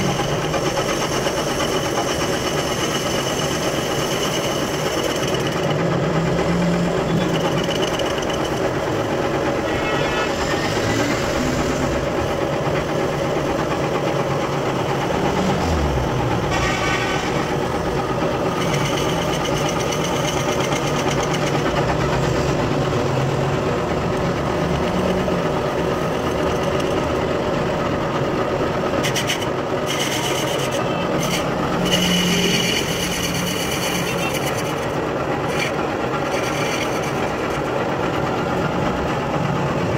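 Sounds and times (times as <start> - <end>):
cutting tool scraping metal: 0.0 - 12.4, 14.7 - 22.0, 29.0 - 37.8
metal lathe humming: 0.0 - 39.9.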